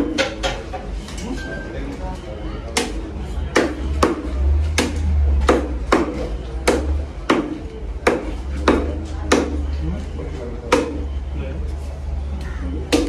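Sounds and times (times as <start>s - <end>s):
knife chopping fish on wood: 2.8s - 9.6s, 10.7s - 11.0s.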